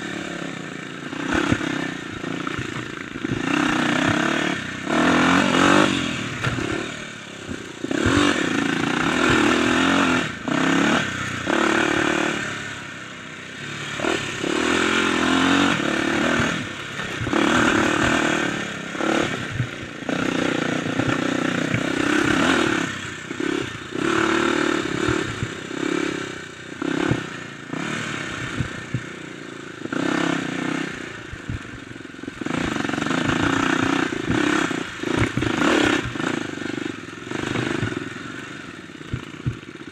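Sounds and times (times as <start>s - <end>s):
dirt bike engine revving: 0.0s - 39.9s
bike knocks and rattles over bumps: 1.2s - 12.4s, 15.0s - 25.9s, 26.9s - 27.5s, 28.4s - 30.1s, 31.2s - 36.8s, 37.4s - 38.2s, 39.1s - 39.9s.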